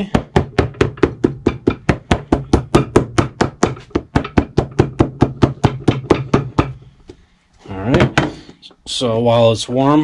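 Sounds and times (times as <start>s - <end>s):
hammer tapping on rubber sole: 0.0s - 7.2s.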